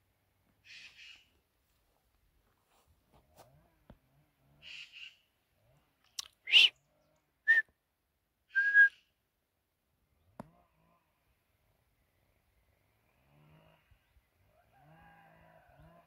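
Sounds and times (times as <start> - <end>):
person whistling: 6.5 - 6.7, 8.5 - 8.9.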